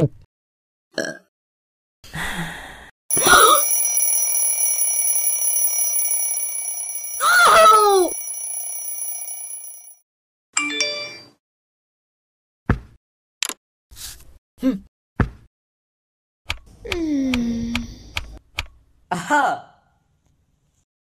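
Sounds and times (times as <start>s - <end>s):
ringing high tones: 3.1s - 10.0s.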